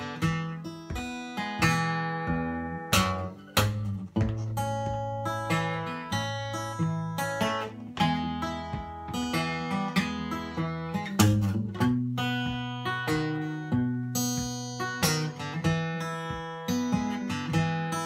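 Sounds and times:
acoustic guitar fingerpicked: 0.0 - 18.0.

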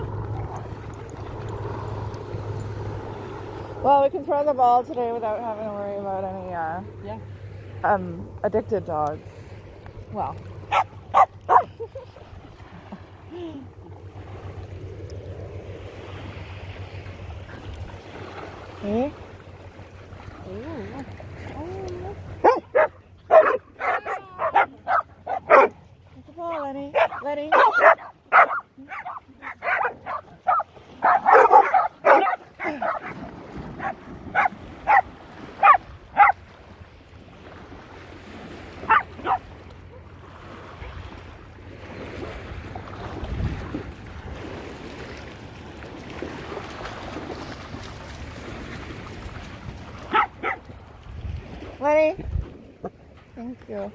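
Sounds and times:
waves lapping on beach: 0.0 - 53.9
wind: 0.0 - 53.9
dogs splashing in water: 7.5 - 53.8
dog barking: 10.7 - 11.7, 22.4 - 25.8, 27.0 - 33.2, 33.8 - 35.0, 35.6 - 36.4, 38.9 - 39.4, 50.1 - 50.6.

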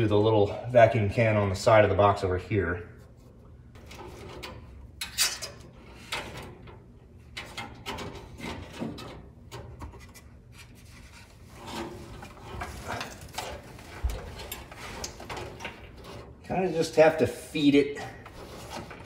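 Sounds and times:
wiring harness rustling and scraping: 3.0 - 19.0.

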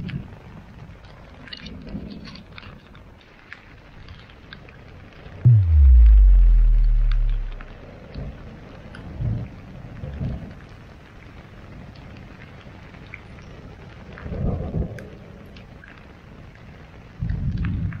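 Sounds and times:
steady rain falling: 0.0 - 18.0
low rumbles of thunder: 5.5 - 8.3.

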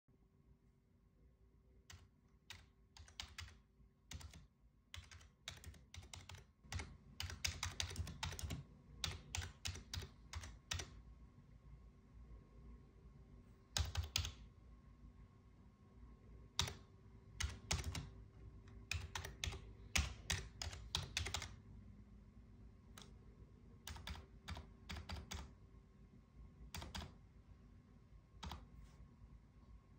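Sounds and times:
computer keyboard typing: 1.8 - 11.0, 13.7 - 14.4, 16.5 - 21.6, 22.8 - 23.2, 23.8 - 25.6, 26.7 - 27.2, 28.3 - 28.8.

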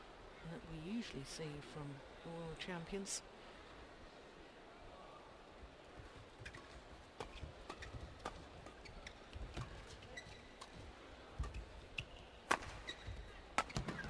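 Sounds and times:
shoes squeaking: 6.0 - 14.0
rackets hitting shuttlecock: 11.4 - 14.0.

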